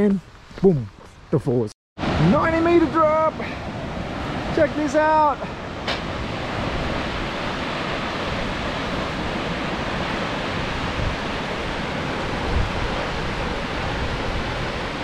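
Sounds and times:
waterfall rushing: 2.0 - 15.0
wind bumps on microphone: 5.4 - 15.0.

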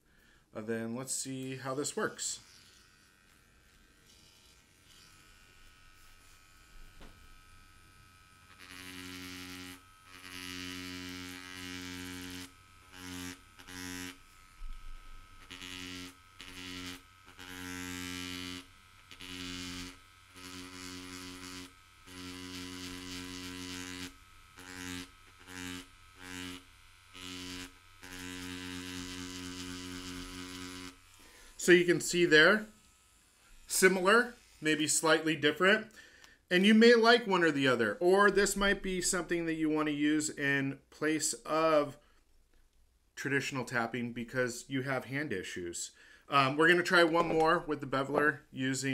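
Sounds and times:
tattoo machine buzzing: 2.1 - 35.5.

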